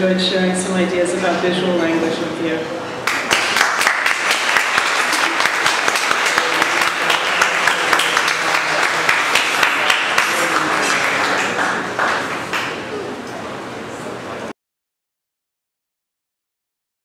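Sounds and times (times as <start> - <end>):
audience applauding: 3.0 - 13.2.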